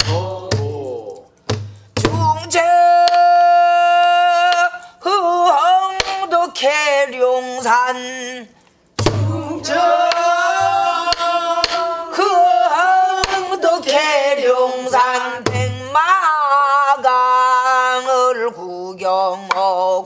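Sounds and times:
barrel drum strokes: 9.0s - 11.8s, 15.4s - 15.9s
woman singing: 9.3s - 20.0s.

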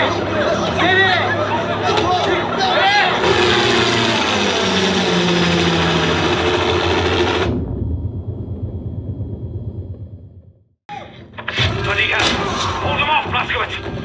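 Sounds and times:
helicopter rotor chop: 1.7s - 7.7s.

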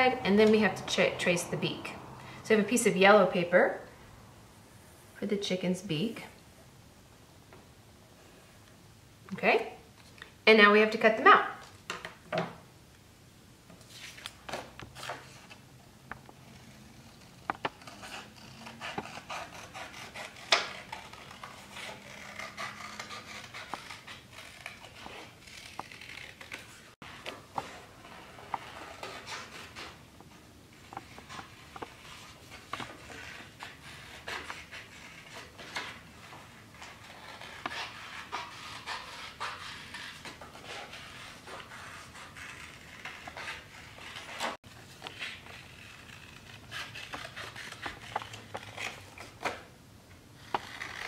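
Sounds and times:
scissors snipping paper: 16.4s - 30.0s, 30.8s - 49.7s, 50.4s - 51.0s.

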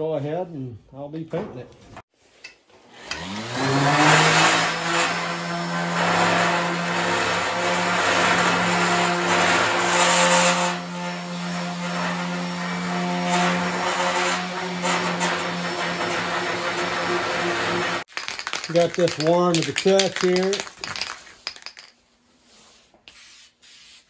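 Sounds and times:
palm sander sanding sheet steel: 3.0s - 18.1s.

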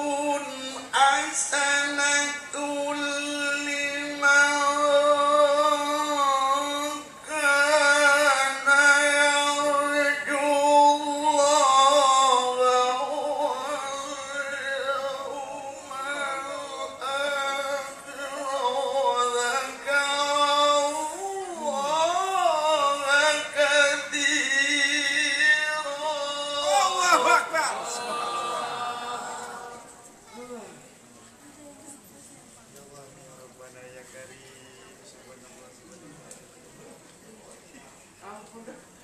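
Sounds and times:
man chanting into a microphone: 0.0s - 29.9s.

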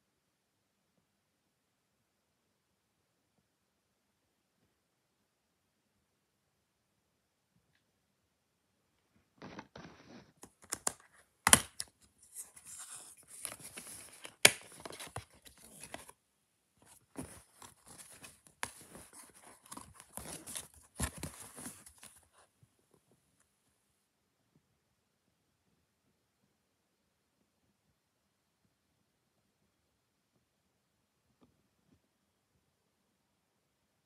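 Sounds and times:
plastic case rustling and crinkling: 9.4s - 16.2s, 16.8s - 22.4s.

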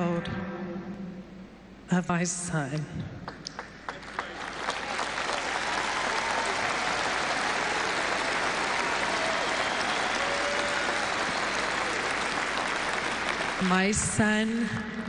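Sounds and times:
audience applauding: 3.3s - 14.1s.

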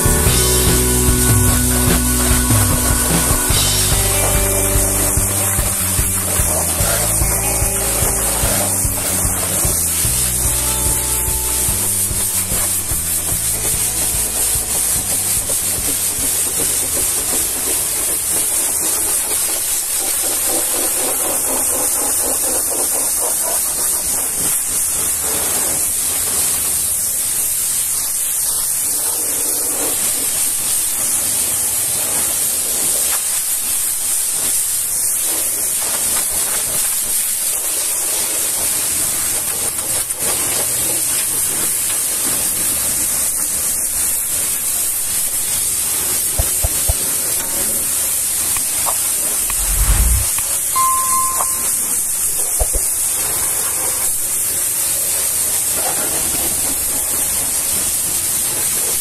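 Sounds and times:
pressure washer spraying metal: 0.0s - 28.5s.

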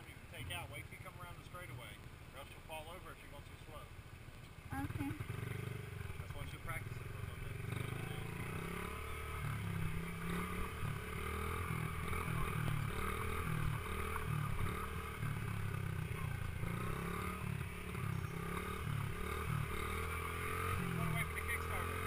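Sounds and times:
dirt bike engine revving: 4.7s - 22.0s.

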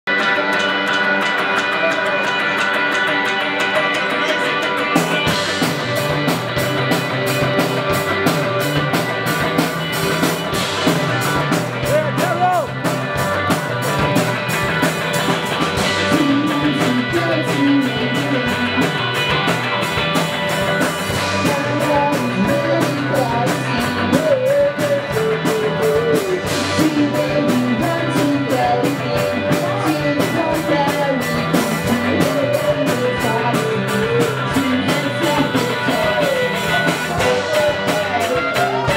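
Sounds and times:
live band with electric guitars: 0.0s - 38.9s
man singing: 15.8s - 19.3s, 21.2s - 38.9s.

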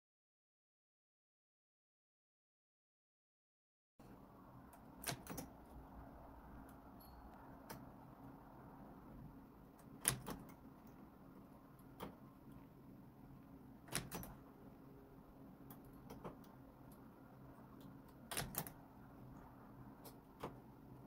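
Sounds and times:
faint steady hum: 4.0s - 21.0s
knitting machine needles clicking: 4.7s - 8.2s, 9.8s - 12.7s, 13.8s - 14.5s, 15.6s - 21.0s.

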